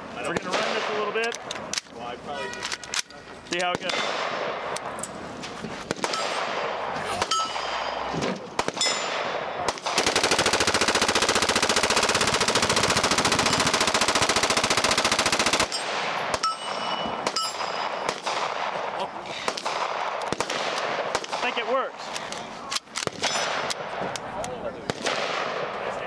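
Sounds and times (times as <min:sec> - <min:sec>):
rapid automatic gunfire burst: 0:09.7 - 0:16.4
single gunshots: 0:17.2 - 0:18.9, 0:19.5 - 0:21.8, 0:24.8 - 0:25.7.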